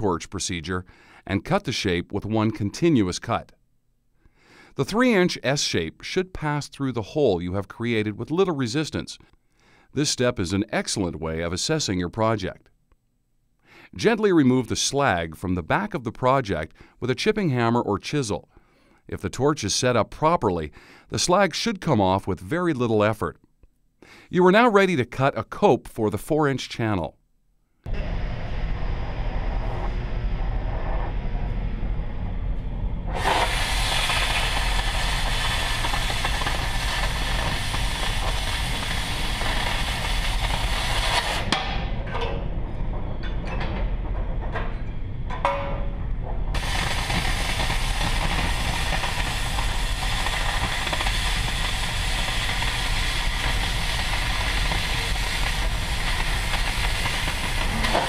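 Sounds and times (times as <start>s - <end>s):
low rumble: 27.9s - 33.2s, 41.6s - 46.6s
cutting torch hissing: 33.1s - 41.6s, 46.6s - 58.0s.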